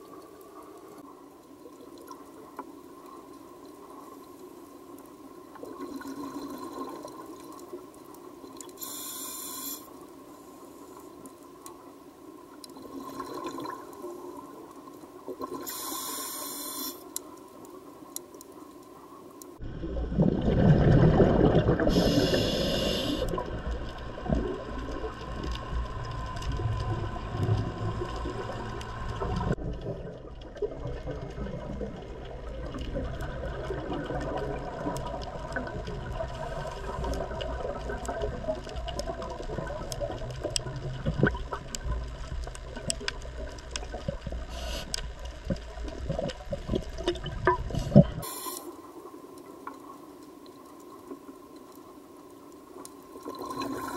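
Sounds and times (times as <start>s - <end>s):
underwater rush of bubbles: 19.6s - 44.6s, 53.1s - 53.9s
low underwater rumble: 19.6s - 48.2s.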